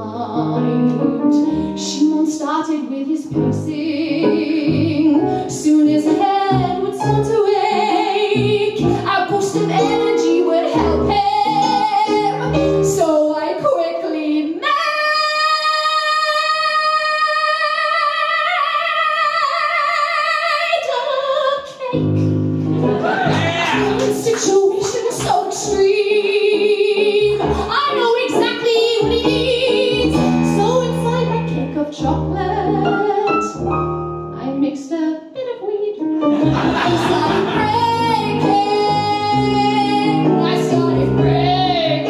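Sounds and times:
piano accompaniment: 0.0s - 15.3s, 21.7s - 42.0s
woman singing: 0.0s - 22.3s, 24.0s - 33.6s, 34.4s - 42.0s.

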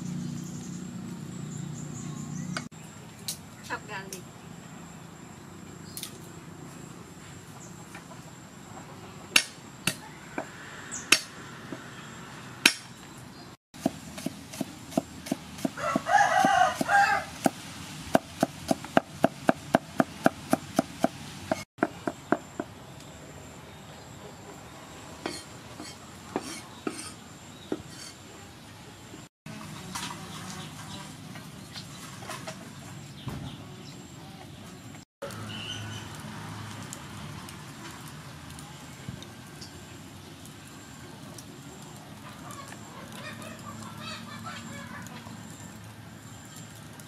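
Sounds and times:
cleaver chopping on wooden board: 13.8s - 22.7s
rooster crowing: 15.7s - 17.4s.

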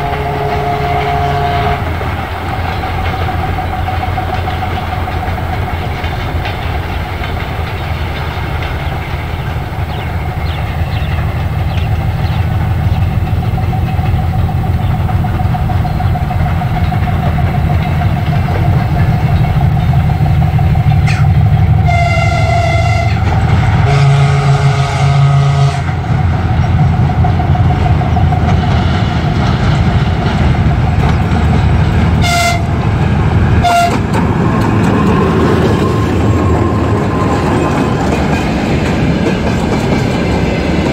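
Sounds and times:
locomotive horn blasts: 0.0s - 2.0s, 21.8s - 26.0s, 32.2s - 32.8s, 33.6s - 34.1s
diesel locomotive engine whine: 0.0s - 40.9s
short high horn toots: 32.2s - 32.7s.

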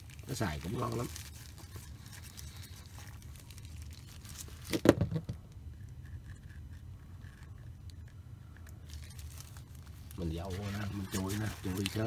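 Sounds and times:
plastic gloves rustling: 0.0s - 4.9s, 8.8s - 12.0s
low steady hum: 0.0s - 12.0s.

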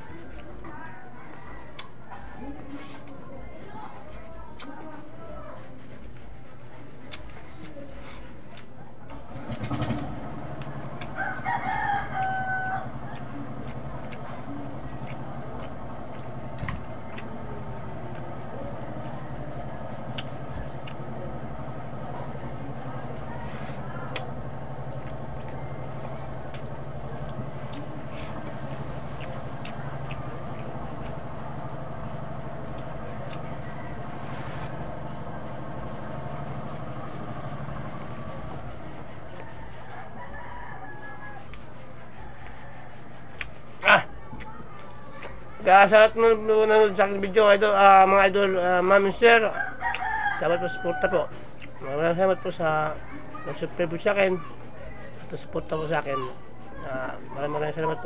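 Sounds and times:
low machine hum: 0.0s - 58.0s
rooster crowing: 0.9s - 2.6s, 11.0s - 13.2s, 39.3s - 41.6s, 49.4s - 51.4s.

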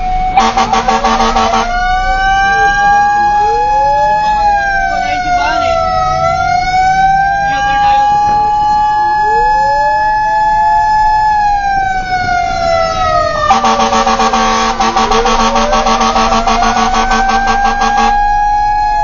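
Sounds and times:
electronic siren wailing: 0.0s - 19.0s
second siren tone sweeping: 0.0s - 19.0s
rapidly pulsing horn tone: 0.3s - 3.7s, 12.8s - 18.4s.

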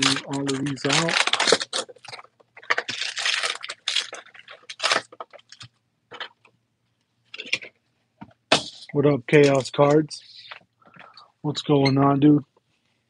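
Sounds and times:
card pack wrappers crinkling: 0.0s - 6.3s.

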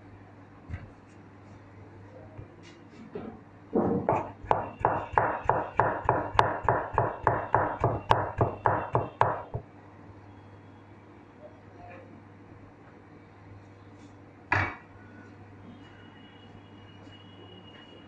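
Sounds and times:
cleaver chopping on plastic board: 4.0s - 9.6s.

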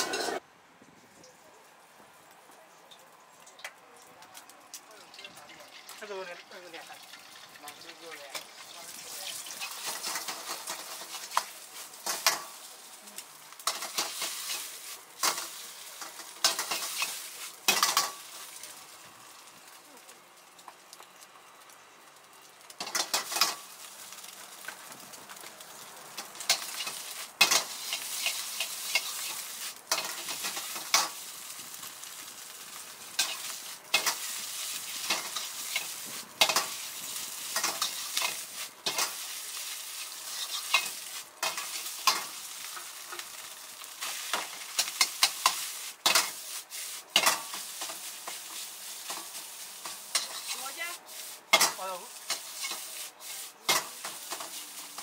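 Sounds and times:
metal ladle scraping wok: 0.0s - 0.4s, 26.4s - 31.2s, 33.1s - 43.3s, 44.0s - 55.0s
rice sizzling in a wok: 0.0s - 0.4s, 1.2s - 55.0s.

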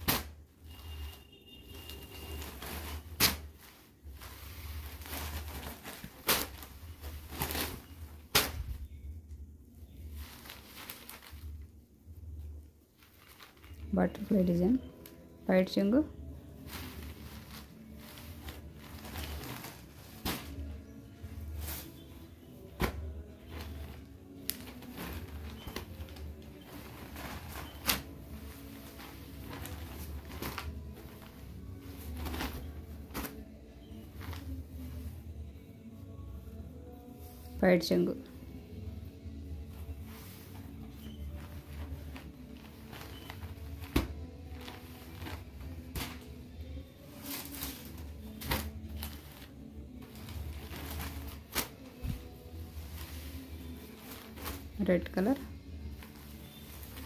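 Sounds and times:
fabric snapping: 0.0s - 0.4s, 2.4s - 8.8s, 16.7s - 22.0s, 22.7s - 33.5s, 40.1s - 46.4s, 47.2s - 54.8s
cloth rustling: 0.0s - 9.0s, 9.9s - 57.0s.

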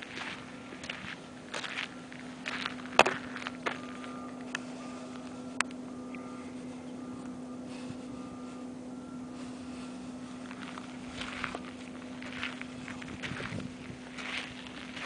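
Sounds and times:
footsteps on gravel: 0.0s - 5.4s, 9.4s - 15.0s
steady low hum: 0.0s - 15.0s.

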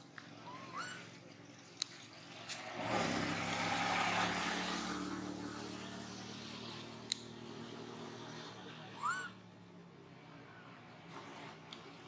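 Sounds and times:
road noise: 0.0s - 12.0s
vehicle engine hum: 0.0s - 12.0s
sharp clicks: 7.0s - 7.3s.

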